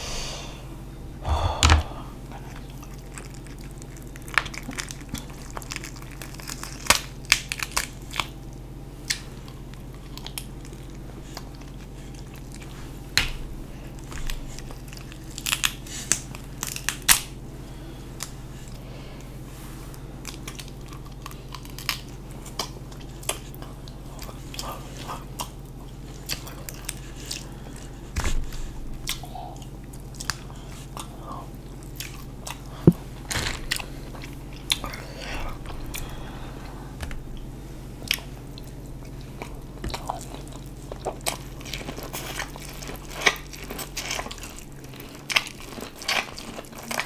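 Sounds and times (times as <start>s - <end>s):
biting and chewing: 1.6s - 19.3s, 20.2s - 47.0s
crab shell cracking: 2.5s - 17.4s, 20.2s - 28.3s.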